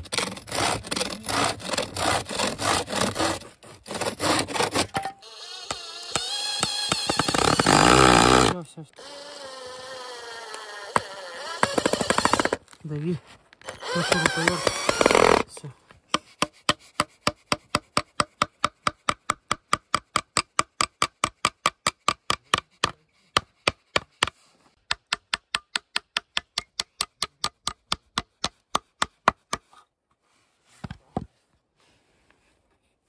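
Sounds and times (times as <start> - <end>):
hammer striking nail into wood: 16.1 - 29.7.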